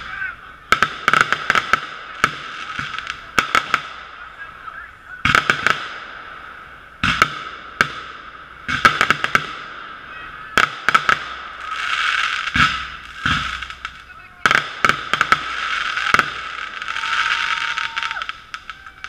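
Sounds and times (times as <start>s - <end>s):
muffled fireworks bangs and crackles: 0.0s - 19.0s.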